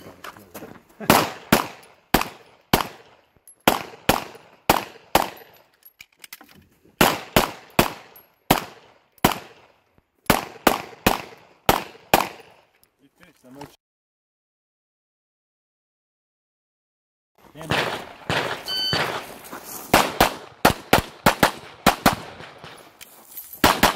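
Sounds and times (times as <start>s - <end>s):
pistol shots: 1.0s - 5.6s, 7.0s - 12.7s, 17.6s - 22.9s, 23.6s - 23.9s.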